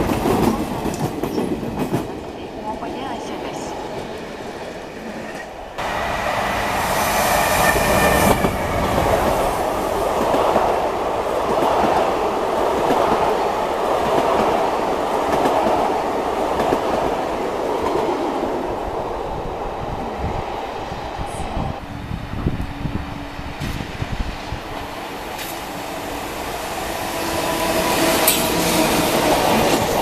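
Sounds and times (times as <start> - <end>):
train wheels rumbling on rails: 0.0 - 30.0
high-pitched wheel squeal: 7.3 - 9.2.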